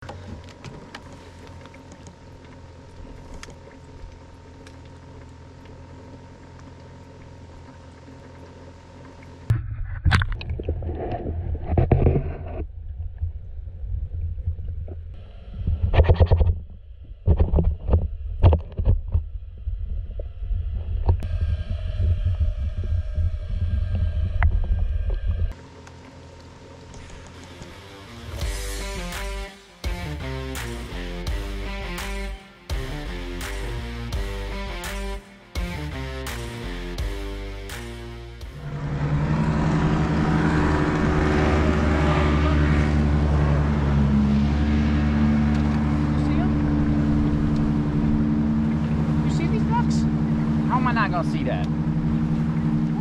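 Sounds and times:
motorboat engine running: 0:00.0 - 0:53.0
muffled underwater rumble: 0:00.1 - 0:27.2, 0:45.5 - 0:53.0
steady multi-pitch whine: 0:15.2 - 0:29.0, 0:36.7 - 0:43.3.

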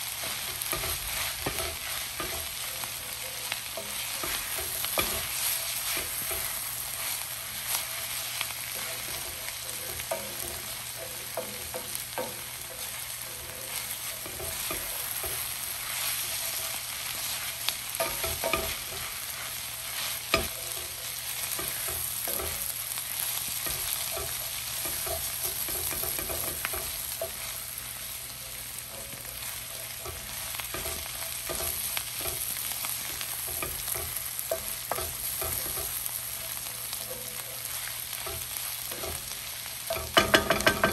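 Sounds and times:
spatula stirring and scraping: 0:00.0 - 0:40.9
vegetables sizzling in oil: 0:00.0 - 0:40.9
spatula knocking against pan: 0:18.0 - 0:19.0, 0:23.5 - 0:27.5, 0:39.9 - 0:40.9.

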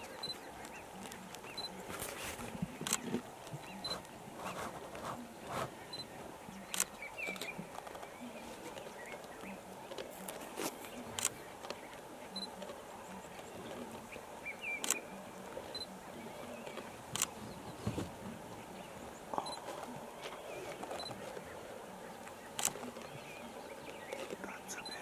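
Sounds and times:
lion chewing and tearing meat: 0:06.7 - 0:24.5.

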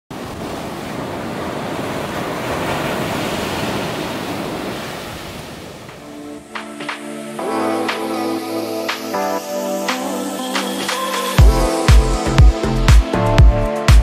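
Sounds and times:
ocean surf washing onto beach: 0:00.1 - 0:11.4
music: 0:06.0 - 0:14.0.

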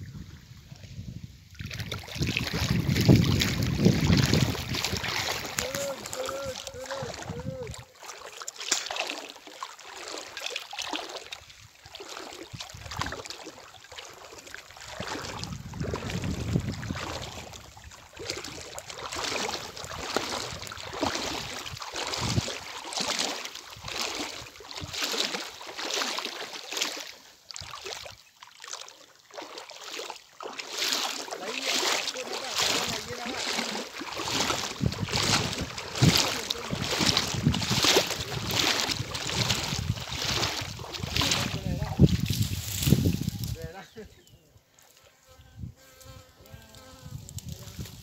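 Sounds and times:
wind buffeting microphone: 0:00.0 - 0:07.9, 0:15.0 - 0:17.8, 0:19.5 - 0:22.6, 0:34.1 - 0:43.8, 0:46.9 - 0:48.0
footsteps through wet grass and water: 0:00.0 - 0:45.2, 0:46.0 - 0:48.0.

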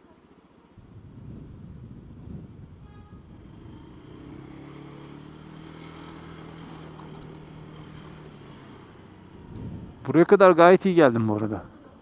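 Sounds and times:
scooter engine humming: 0:00.9 - 0:10.1.

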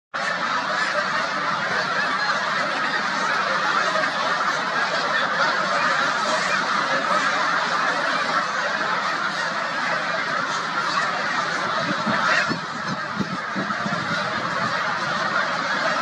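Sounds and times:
flock of geese honking: 0:00.2 - 0:16.0.

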